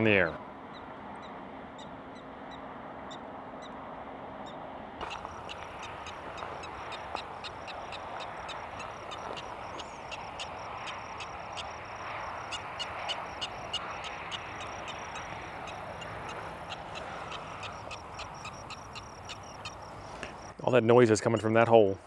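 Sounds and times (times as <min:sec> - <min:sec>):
prairie dog chirping barks: 0:05.0 - 0:20.5.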